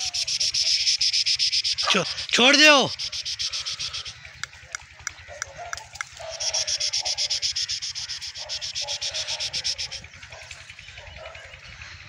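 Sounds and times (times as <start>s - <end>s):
faint insect chirring: 0.0s - 4.2s, 6.1s - 10.7s
insect chirring: 0.0s - 4.2s, 6.2s - 10.0s.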